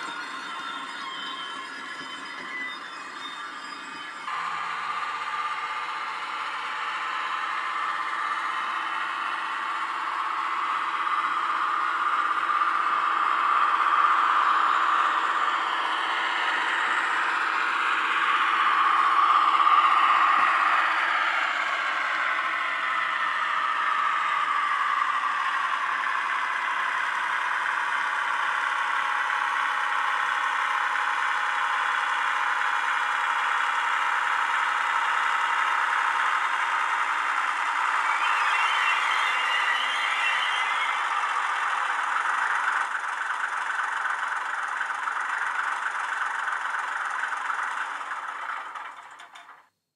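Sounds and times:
model locomotive diesel engine sound: 0.0s - 49.8s
model diesel engine idling: 41.0s - 49.4s.

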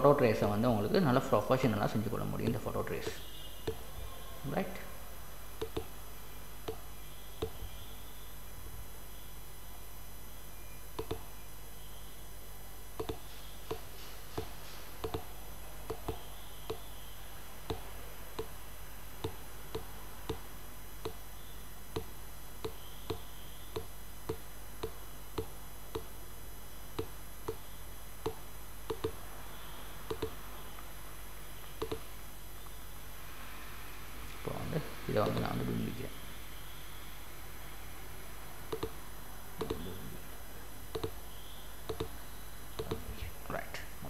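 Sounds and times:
faint hum: 0.0s - 44.0s
mouse button clicking: 3.0s - 3.8s, 5.6s - 5.9s, 11.0s - 11.3s, 13.0s - 13.8s, 15.9s - 16.9s, 27.0s - 29.2s, 30.1s - 30.4s, 31.7s - 32.8s, 38.7s - 39.0s, 39.6s - 39.9s, 40.9s - 41.2s, 41.9s - 42.2s, 42.8s - 43.1s.

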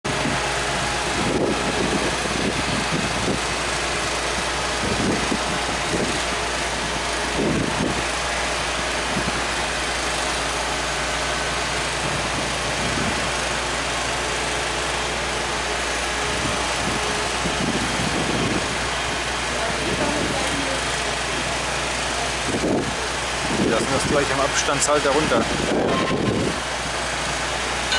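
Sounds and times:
excavator diesel engine running: 0.0s - 27.9s.

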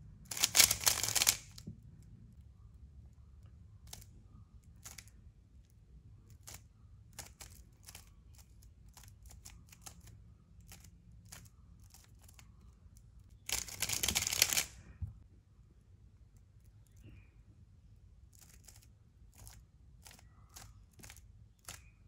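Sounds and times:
puzzle cube clicking: 0.3s - 1.6s, 13.4s - 14.8s.

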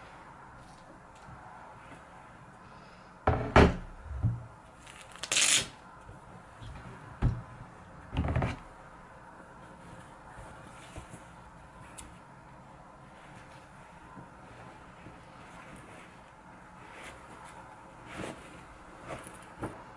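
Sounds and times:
felt sleeve scraping rustles: 0.0s - 2.5s, 8.5s - 19.9s
laptop knocks: 3.3s - 4.4s.

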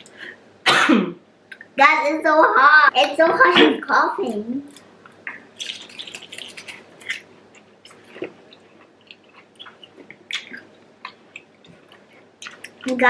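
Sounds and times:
wet chewing and mouth smacks: 4.7s - 13.0s.

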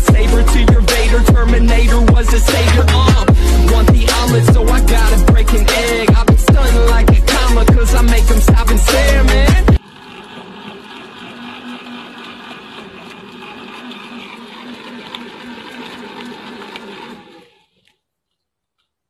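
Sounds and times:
small electric motor whirring: 9.8s - 17.8s.

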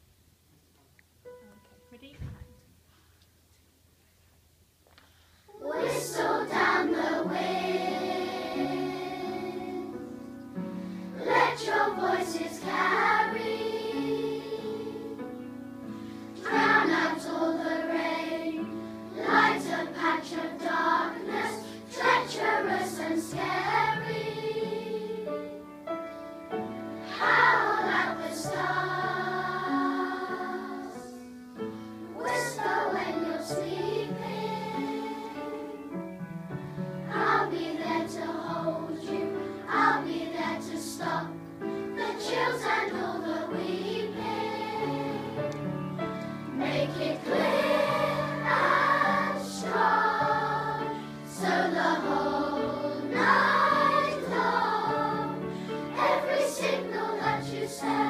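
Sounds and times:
children's choir singing: 5.5s - 36.0s, 37.0s - 58.0s.

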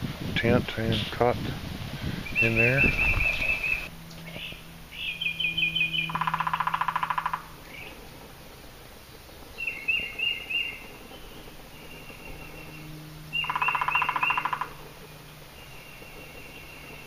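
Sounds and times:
bird falling call notes: 2.2s - 8.2s, 9.5s - 17.0s
woodpecker drumming on wood: 2.4s - 17.0s.

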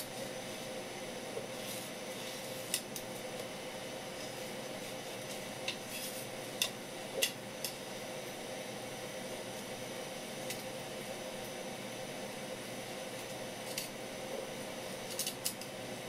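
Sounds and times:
knife scraping fish scales: 5.8s - 6.3s.

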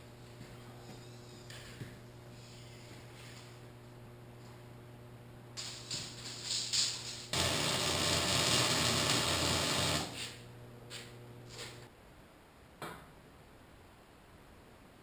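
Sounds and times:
low steady hum: 0.0s - 15.0s
welding arc crackling: 5.6s - 11.8s.

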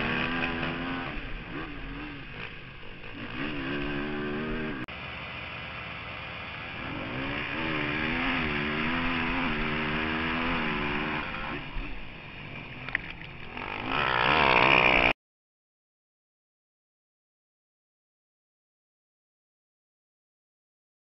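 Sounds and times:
quad engine revving: 0.0s - 5.0s, 6.5s - 15.2s.

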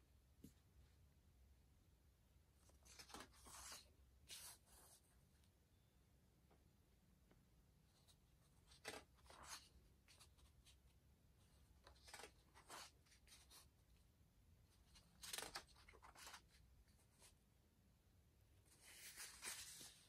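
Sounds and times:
paper pages turning: 2.6s - 5.0s, 7.9s - 10.8s, 11.5s - 13.7s, 14.7s - 16.6s, 18.6s - 20.0s.

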